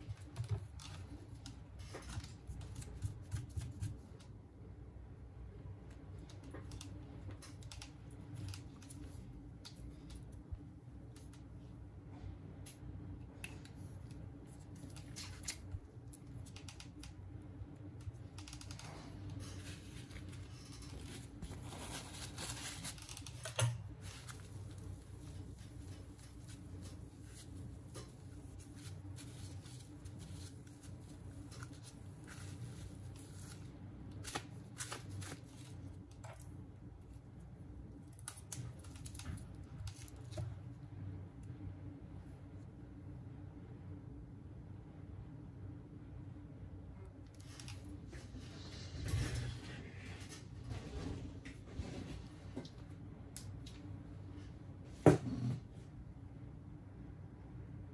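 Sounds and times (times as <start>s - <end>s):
steady low hum: 0.0s - 57.9s.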